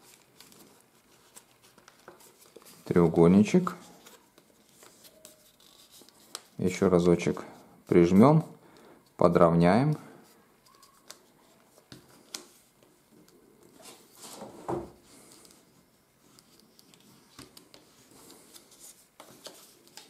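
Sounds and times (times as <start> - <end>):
paper crackle: 0.0 - 2.9, 3.9 - 6.6, 10.3 - 12.5
paper rustling and crinkling: 0.0 - 7.3, 16.2 - 20.0.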